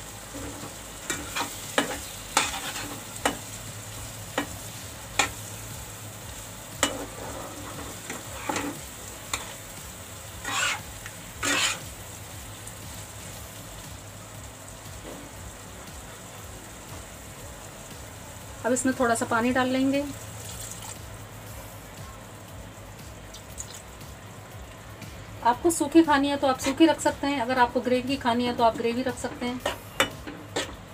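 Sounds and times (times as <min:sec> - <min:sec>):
low sizzle of frying: 0:00.0 - 0:30.9
spatula scraping a pan: 0:00.3 - 0:03.1, 0:06.8 - 0:09.6, 0:10.4 - 0:11.9, 0:26.6 - 0:26.9, 0:29.3 - 0:30.8.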